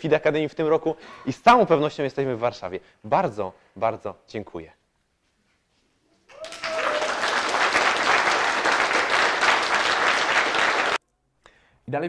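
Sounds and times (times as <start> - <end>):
crowd applauding: 6.3 - 11.0.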